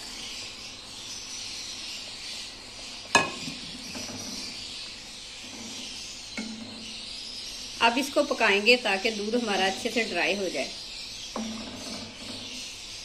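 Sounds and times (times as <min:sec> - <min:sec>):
wooden spatula stirring: 0:05.4 - 0:07.0.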